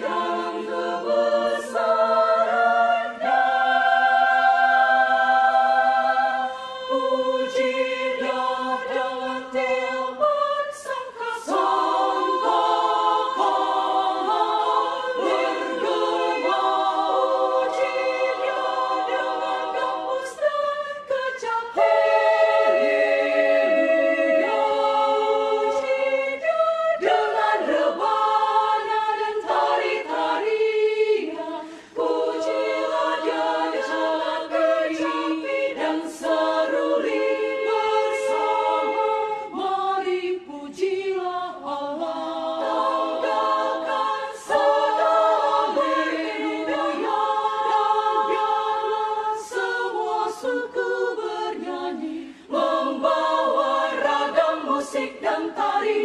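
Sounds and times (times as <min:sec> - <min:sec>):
women's choir singing: 0:00.0 - 0:56.0.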